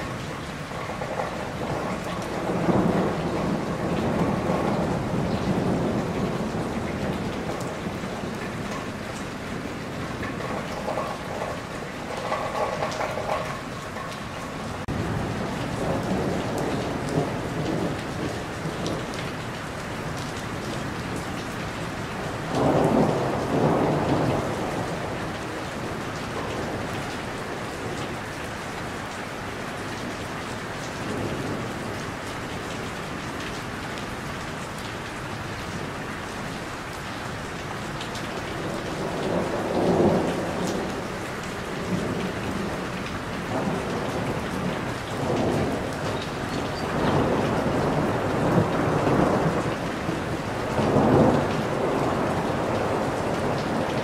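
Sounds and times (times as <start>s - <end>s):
thunder rolling: 0.0s - 19.3s, 22.2s - 28.0s, 38.6s - 54.0s
steady rainfall: 0.0s - 54.0s.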